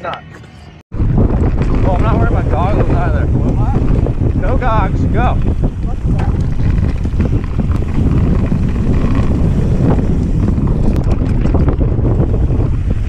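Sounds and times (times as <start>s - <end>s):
bike tyres rumbling on gravel: 0.9s - 13.0s
wind buffeting microphone: 0.9s - 13.0s
clicks and rattles over stones: 5.4s - 11.9s.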